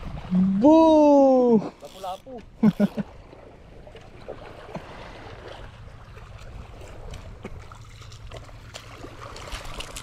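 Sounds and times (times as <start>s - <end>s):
water lapping and trickling: 0.0s - 10.0s.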